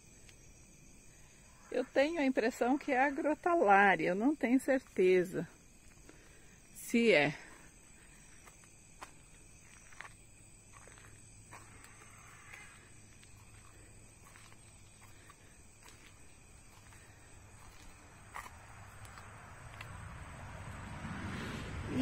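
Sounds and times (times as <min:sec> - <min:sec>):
faint outdoor ambience: 0:00.0 - 0:22.0
footsteps on dirt: 0:07.9 - 0:20.0.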